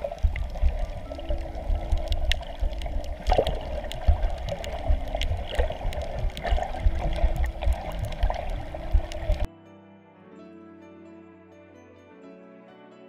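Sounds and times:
muffled underwater thumping: 0:00.0 - 0:09.5
sharp crackling clicks: 0:00.0 - 0:09.5.

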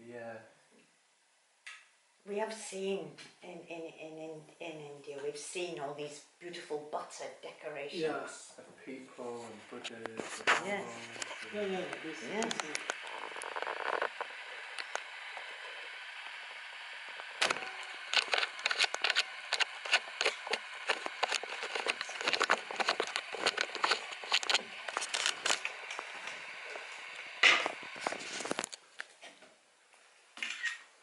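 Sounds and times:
rustling close to microphone: 0:09.2 - 0:11.6, 0:18.0 - 0:26.9, 0:27.6 - 0:28.8.

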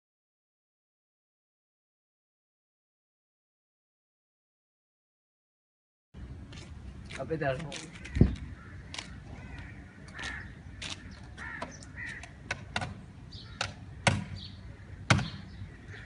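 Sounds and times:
crows cawing: 0:07.7 - 0:12.5, 0:13.3 - 0:16.0.

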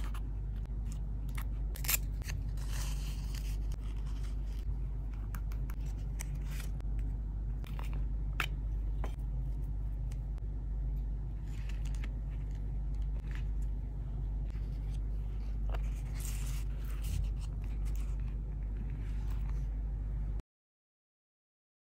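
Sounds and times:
paper pages rustling and crinkling: 0:00.0 - 0:09.7, 0:11.3 - 0:13.9, 0:14.5 - 0:19.7
low hum: 0:00.0 - 0:20.4.

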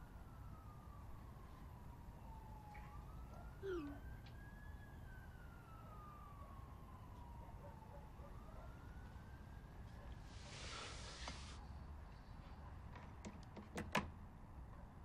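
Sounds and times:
faint siren wailing: 0:00.0 - 0:10.9.

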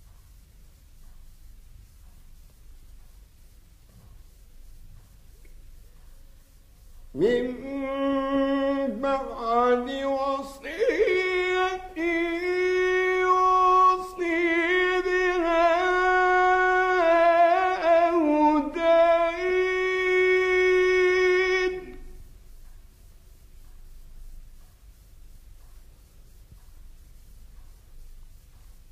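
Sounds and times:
man chanting melodic recitation: 0:07.1 - 0:22.2.

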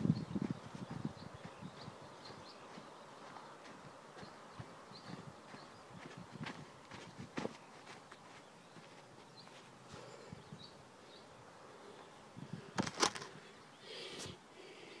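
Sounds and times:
footsteps crunching on gravel: 0:00.4 - 0:09.8
phone handling noise: 0:12.8 - 0:13.3.

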